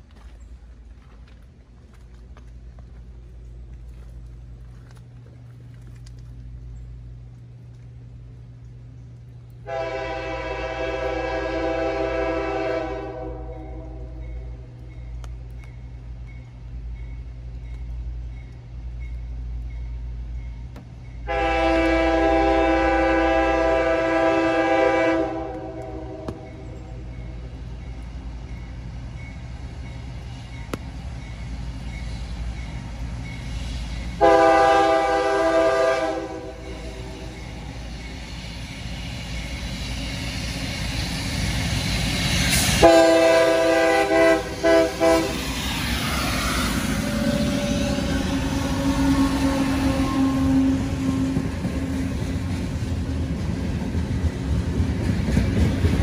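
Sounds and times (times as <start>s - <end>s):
locomotive engines rumbling: 0.0s - 56.0s
train air horn blasts: 9.6s - 14.4s, 21.2s - 27.1s, 34.2s - 37.7s, 42.6s - 45.6s, 46.4s - 52.0s.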